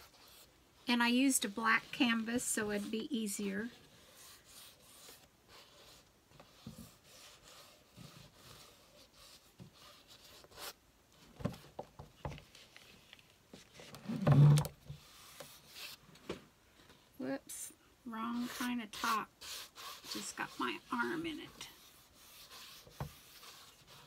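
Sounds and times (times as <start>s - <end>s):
fingers rubbing wet paint on canvas: 18.2s - 24.0s.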